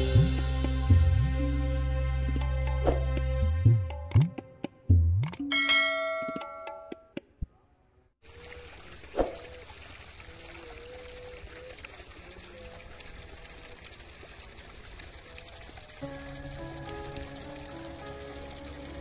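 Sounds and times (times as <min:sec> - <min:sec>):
water jet spraying hiss: 0:15.7 - 0:19.0.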